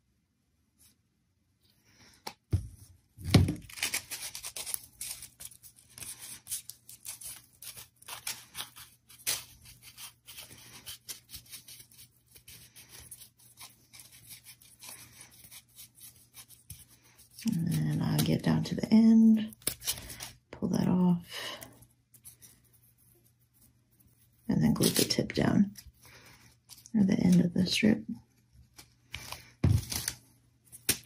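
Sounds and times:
crepe paper crinkling: 3.4s - 18.5s, 28.6s - 31.0s.

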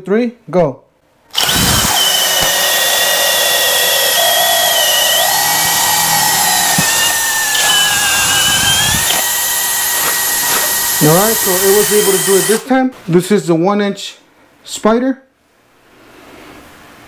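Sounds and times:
drill bit rasping through wood: 1.3s - 12.6s
drill motor whine: 1.3s - 12.6s.

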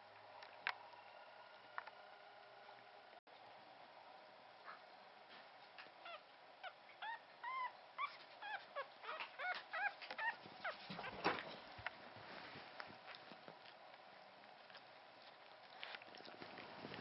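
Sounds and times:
puppy squeaking: 6.0s - 11.4s.

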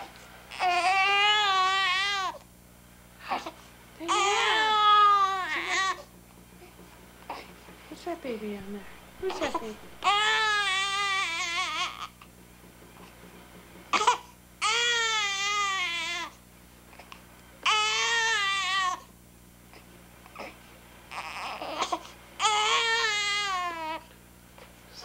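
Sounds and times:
baby crying: 0.5s - 2.4s, 3.2s - 6.1s, 9.2s - 12.2s, 13.9s - 16.4s, 17.6s - 19.1s, 20.3s - 24.1s.

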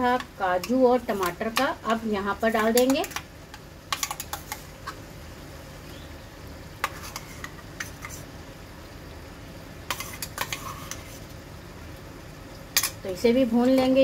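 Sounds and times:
soft steady sizzle: 0.0s - 14.0s
spatula scraping steel pan: 9.9s - 11.2s.

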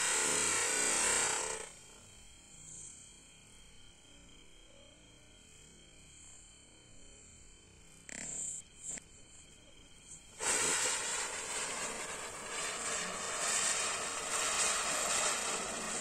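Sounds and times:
firework hissing: 0.0s - 1.8s, 10.1s - 16.0s
crickets chirping: 0.0s - 16.0s.

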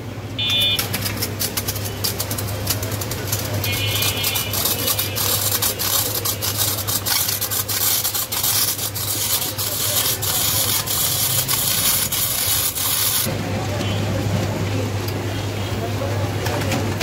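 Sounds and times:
blade scraping ice: 0.8s - 13.3s.

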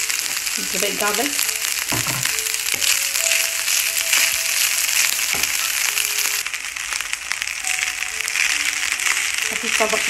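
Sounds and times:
rice sizzling in oil: 0.0s - 10.0s
spatula scraping and knocking pan: 1.9s - 5.8s.

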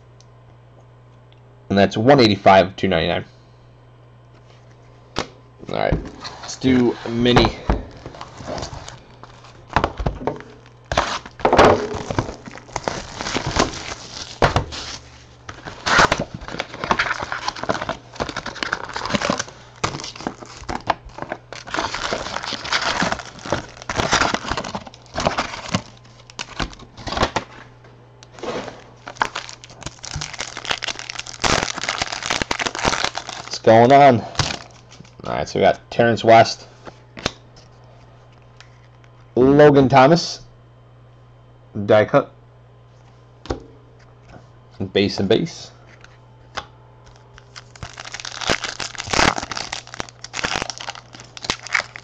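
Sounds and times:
cards rustling: 4.6s - 27.7s, 28.3s - 35.3s, 47.0s - 52.0s
foil wrappers tearing and crinkling: 7.9s - 27.6s, 28.3s - 35.3s, 47.0s - 52.0s.

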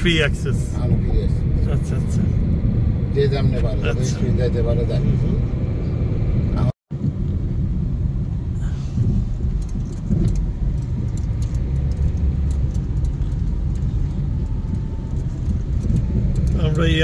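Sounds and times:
car cabin road noise: 0.0s - 17.0s
light ticks and rattles: 9.0s - 17.0s.

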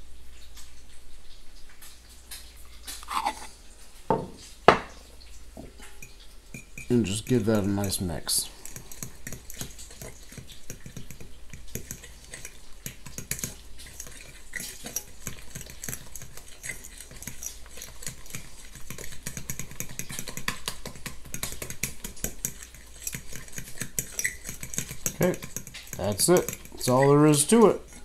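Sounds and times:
fork beating eggs in glass bowl: 5.8s - 28.0s.

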